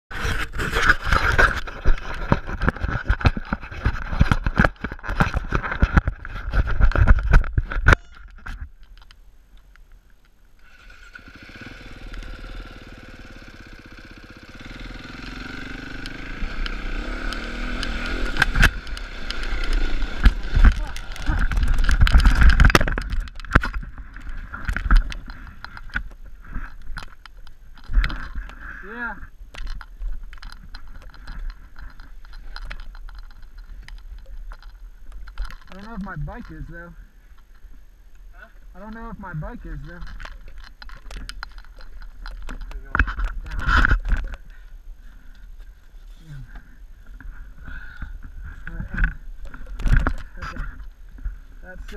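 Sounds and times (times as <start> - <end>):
knocks and scrapes on rock: 0.1 - 8.7, 17.3 - 36.6, 39.0 - 44.6, 48.3 - 51.4
camera handling knocks and scrapes: 0.2 - 8.7.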